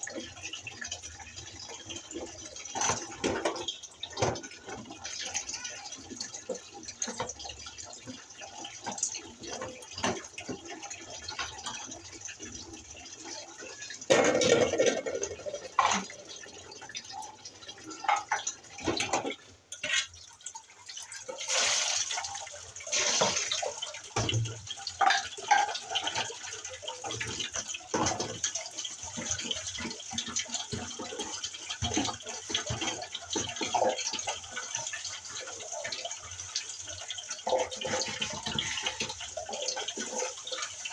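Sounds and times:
water splashing in basins: 0.0s - 40.9s.

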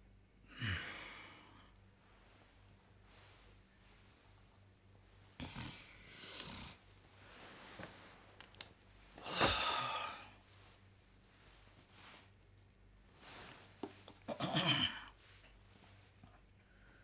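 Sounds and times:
person snoring: 5.4s - 6.8s, 9.2s - 10.4s.

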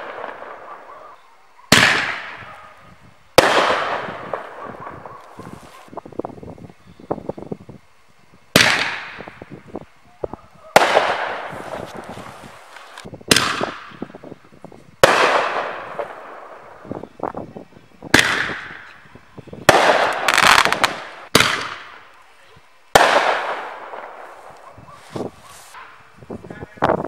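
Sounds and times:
firework bangs echoing: 0.0s - 5.9s, 8.5s - 9.7s, 10.3s - 14.3s, 15.0s - 17.1s, 18.1s - 22.1s, 22.9s - 26.0s
faint firework crackling: 0.0s - 27.0s.

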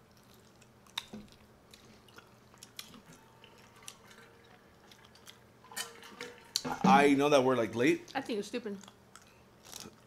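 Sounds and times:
chewing with wet mouth clicks: 0.0s - 5.5s, 8.1s - 10.0s.

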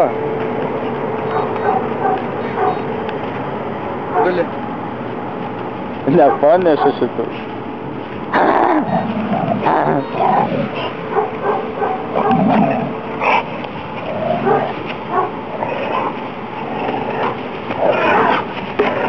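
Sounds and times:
dog barking and yipping: 1.3s - 2.8s, 6.1s - 7.0s, 10.8s - 13.4s, 14.3s - 16.2s, 18.0s - 18.4s.

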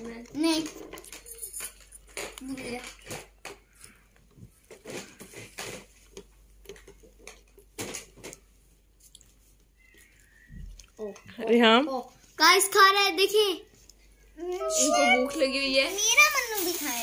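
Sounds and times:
tissue paper rustling: 14.6s - 17.0s.

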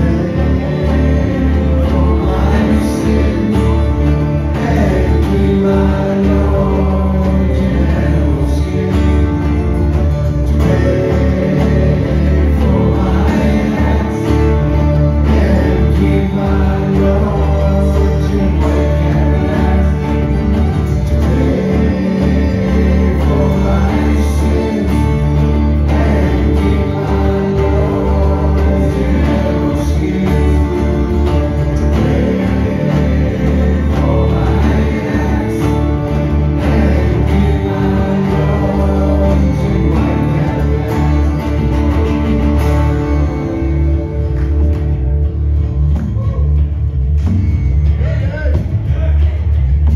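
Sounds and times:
men singing together: 0.0s - 44.2s
acoustic guitar: 0.0s - 49.9s.

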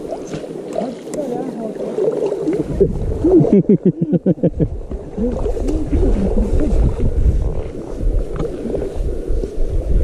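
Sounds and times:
low rumble: 2.6s - 3.7s.

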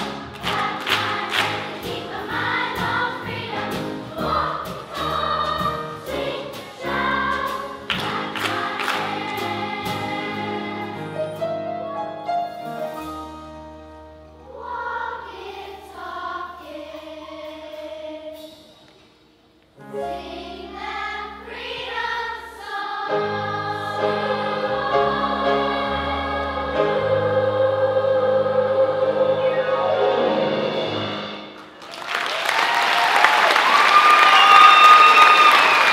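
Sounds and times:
children's choir singing: 0.0s - 11.7s, 14.4s - 18.9s, 19.9s - 31.8s
piano accompaniment: 0.0s - 18.2s, 19.8s - 31.8s.

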